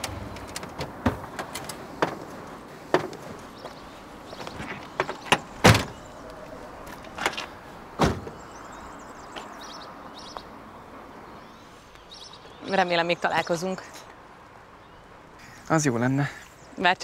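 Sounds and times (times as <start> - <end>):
car door slamming: 5.0 - 6.1, 7.2 - 8.4.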